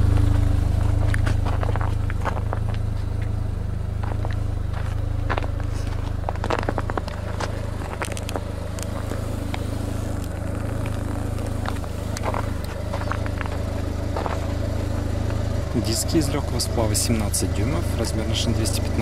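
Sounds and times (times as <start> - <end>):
car engine idling: 0.0 - 19.0
sharp clicks and crackles: 4.0 - 15.5.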